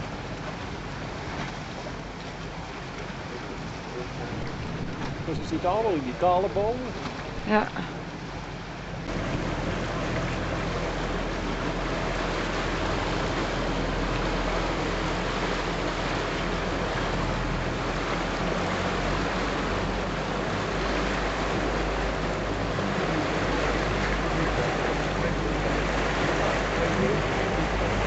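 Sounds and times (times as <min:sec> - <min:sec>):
boat motor drone: 0:00.0 - 0:28.0
water and wind rushing: 0:00.0 - 0:28.0.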